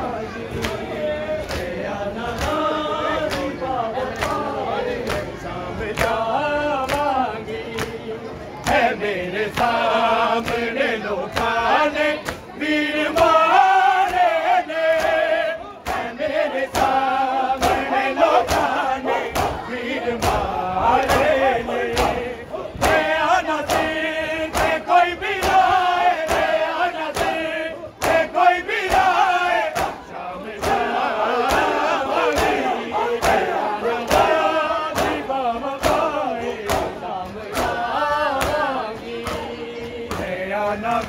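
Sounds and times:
crowd singing along: 0.0s - 41.0s
men singing a lament in chorus: 0.0s - 41.0s.

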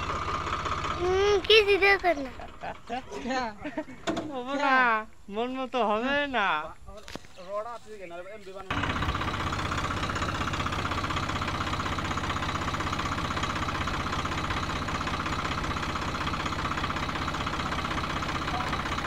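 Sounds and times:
tractor diesel engine running: 0.0s - 4.3s, 8.5s - 19.0s.

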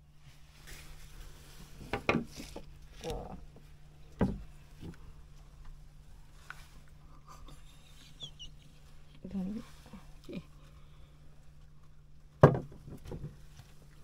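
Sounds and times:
steady low hum: 0.0s - 14.0s
dull knocks and thumps: 4.2s - 5.0s, 12.4s - 13.5s.

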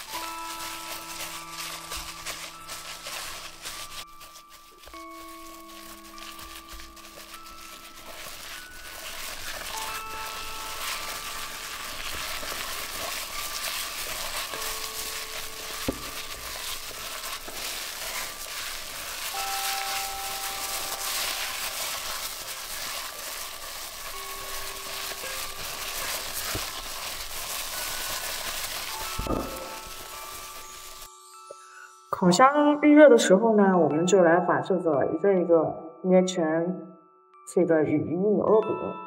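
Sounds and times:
wet mixture squishing: 0.0s - 31.1s.

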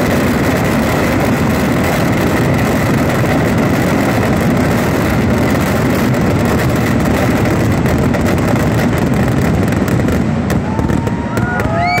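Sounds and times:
fireworks exploding and crackling: 0.0s - 12.0s
heavy rumble: 0.0s - 12.0s
rising whistle: 10.7s - 12.0s.

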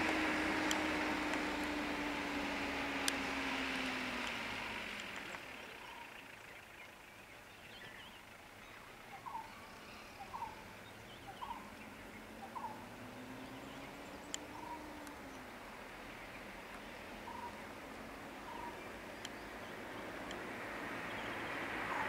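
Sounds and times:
faint vehicle engine hum: 0.0s - 22.0s
bird calling: 5.6s - 7.0s, 7.6s - 15.5s, 16.2s - 17.7s, 18.3s - 20.1s.

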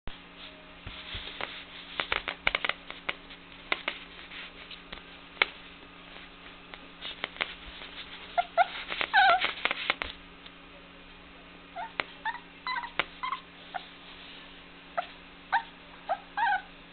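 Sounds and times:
puppies scuffling and clicking: 0.9s - 5.6s, 6.7s - 10.2s
puppies whimpering and yipping: 8.2s - 9.8s, 11.8s - 14.0s, 15.0s - 16.8s.

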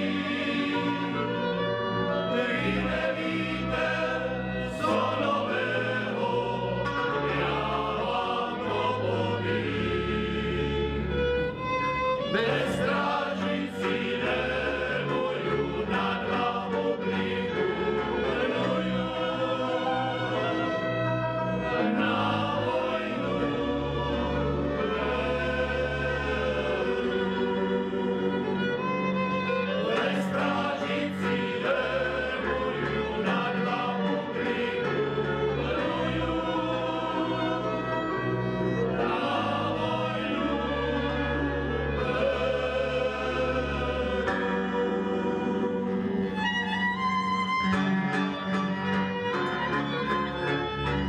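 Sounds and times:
male choir singing: 0.0s - 11.4s, 12.2s - 46.7s
folk band playing: 0.0s - 51.0s.

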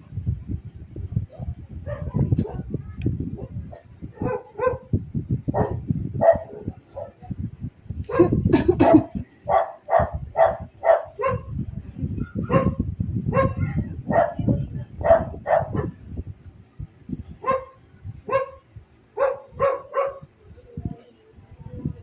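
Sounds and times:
dog barking: 1.3s - 2.6s, 3.4s - 7.2s, 8.1s - 11.6s, 12.4s - 16.0s, 17.4s - 18.6s, 19.2s - 20.3s.

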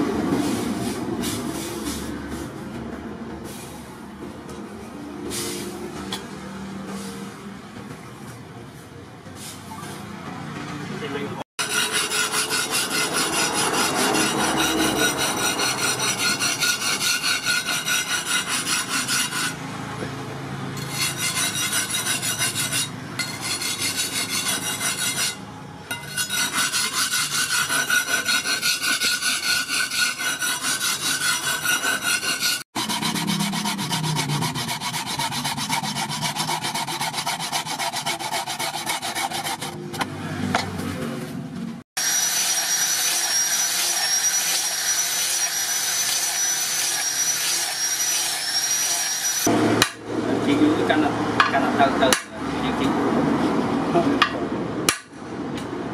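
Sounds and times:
handsaw cutting wood: 11.6s - 19.6s, 20.8s - 25.4s, 26.0s - 39.8s, 42.0s - 50.0s
steel blade scraped on sharpening block: 11.6s - 19.6s, 20.8s - 39.8s, 42.1s - 49.5s.

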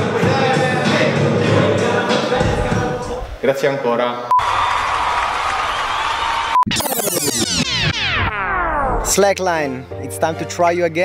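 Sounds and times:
synthesizer sweeping downward: 6.5s - 9.4s.

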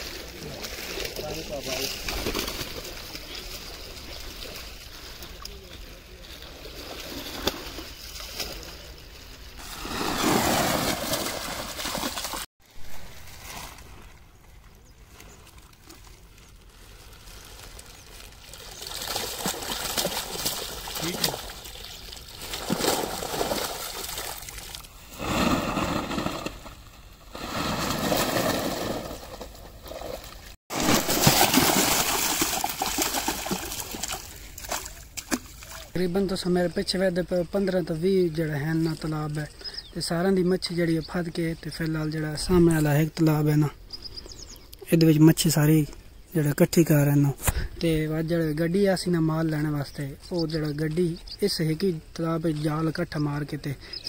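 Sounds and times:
water splashing and churning: 0.0s - 36.0s.

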